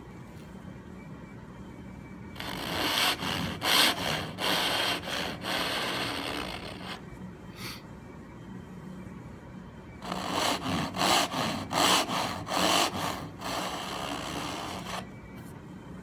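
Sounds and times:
pull saw sawing wood: 2.4s - 7.0s, 10.0s - 15.1s.

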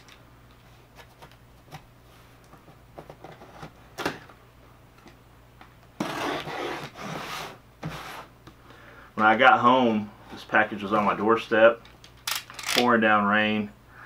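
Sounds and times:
box cutter slicing tape: 6.0s - 8.3s.

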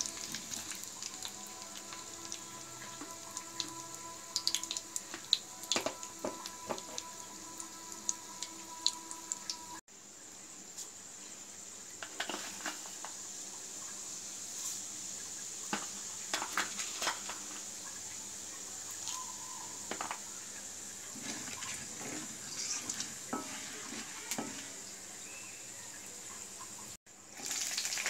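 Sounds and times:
hot oil sizzling in a pan: 0.0s - 9.8s, 11.5s - 28.0s
wooden spatula stirring: 20.9s - 25.2s.

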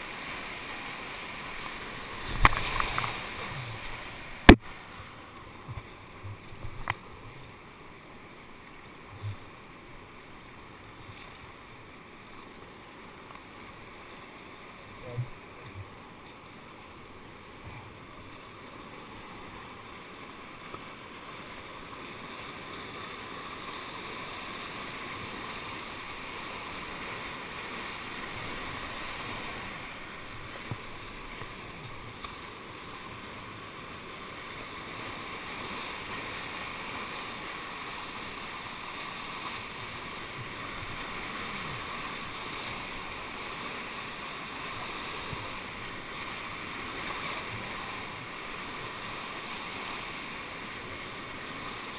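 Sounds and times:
whitewater rushing: 0.0s - 51.9s
kayak knocks: 2.3s - 3.8s.

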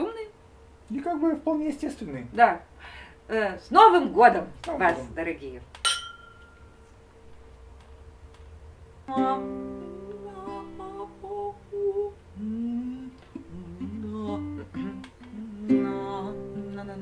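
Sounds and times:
acoustic guitar: 9.1s - 17.0s.

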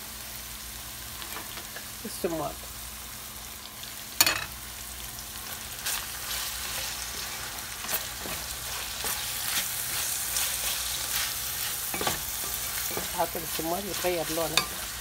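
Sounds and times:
meat and onion sizzling in pan: 0.0s - 15.0s
wooden spoon scraping pan: 6.7s - 15.0s.

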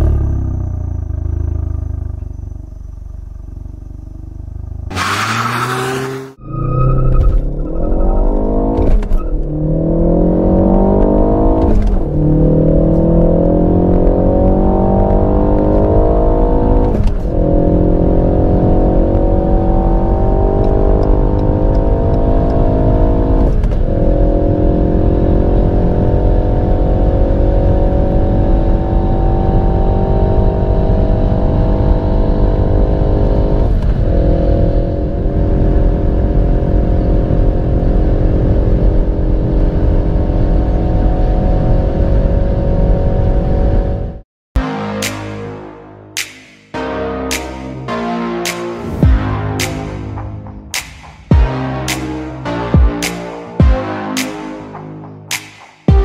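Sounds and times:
car engine at full throttle: 0.0s - 44.2s.

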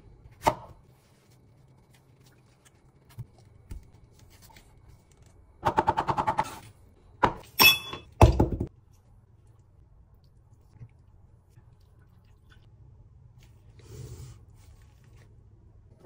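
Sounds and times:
sharp ringing clink: 7.6s - 8.1s.

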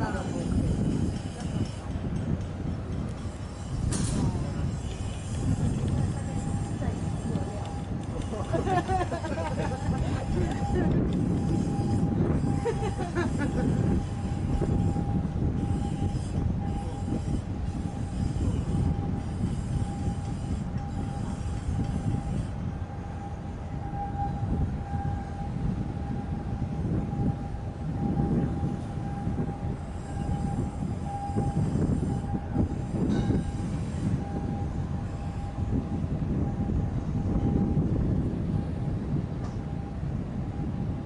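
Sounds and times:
ship rumbling: 0.0s - 41.0s.

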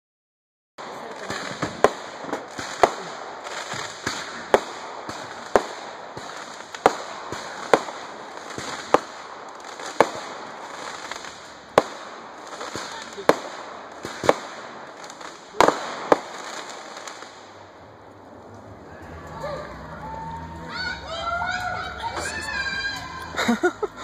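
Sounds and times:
small firework pops: 0.8s - 17.6s
fireworks bangs: 0.8s - 24.0s
steady background noise: 0.8s - 24.0s.

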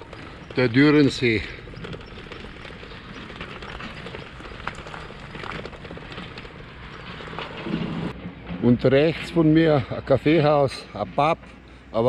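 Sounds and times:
bicycle tyres crunching on gravel: 0.0s - 8.1s.

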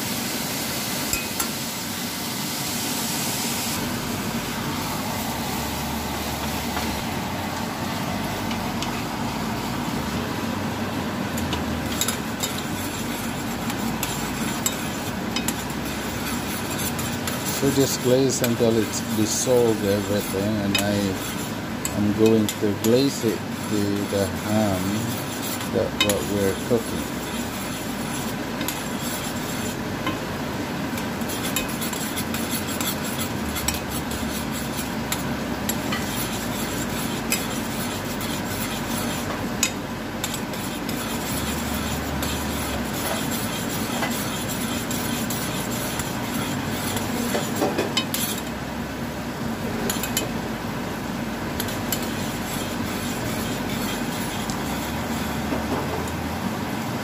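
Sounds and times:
low background hum: 0.0s - 57.0s
metal spoon scraping a pan: 11.8s - 29.8s, 31.0s - 48.5s, 49.8s - 50.3s, 51.6s - 55.7s.

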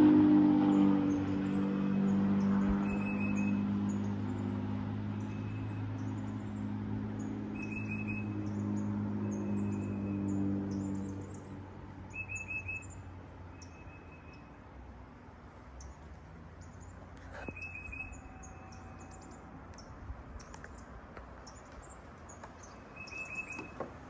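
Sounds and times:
low engine hum: 0.0s - 24.0s
birds chirping: 0.6s - 14.8s, 15.4s - 24.0s
bird rapid trill: 2.8s - 3.6s.

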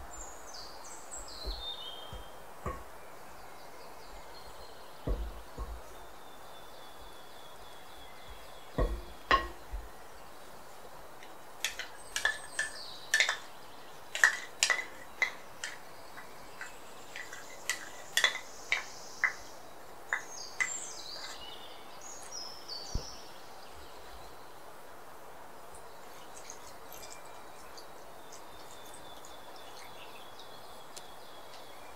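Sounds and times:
wooden spoon tapping glass bowl: 1.4s - 2.9s, 5.1s - 6.0s, 8.7s - 9.9s, 11.6s - 13.4s.

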